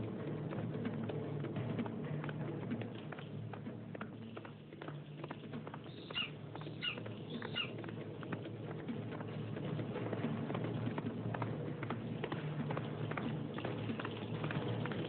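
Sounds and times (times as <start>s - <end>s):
eagle crying: 6.0s - 7.7s.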